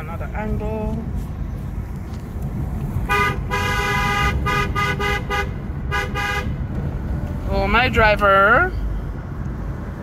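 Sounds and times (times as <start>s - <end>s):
road rumble inside car: 0.0s - 10.0s
car horn honking: 3.1s - 6.6s.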